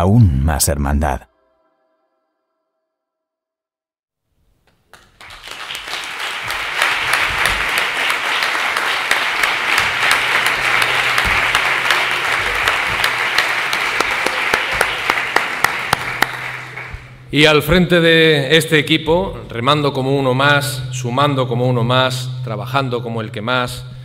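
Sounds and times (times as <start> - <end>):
audience applauding: 4.7 - 17.3.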